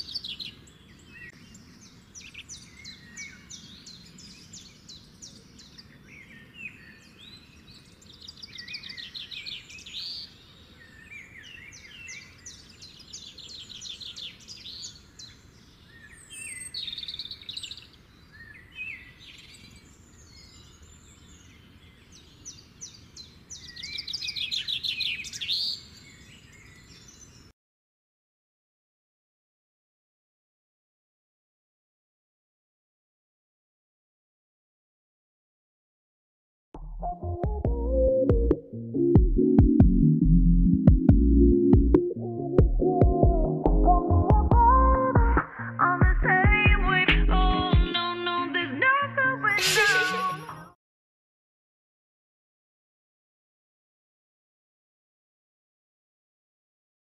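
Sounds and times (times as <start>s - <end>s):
songbirds trilling and chirping: 0.0s - 27.5s.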